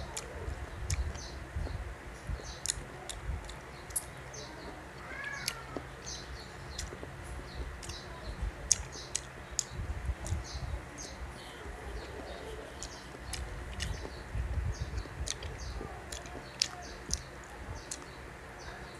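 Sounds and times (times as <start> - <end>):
wet chewing mouth clicks: 0.9 - 1.3, 2.6 - 4.1, 7.8 - 8.0, 12.8 - 14.2, 15.0 - 17.3.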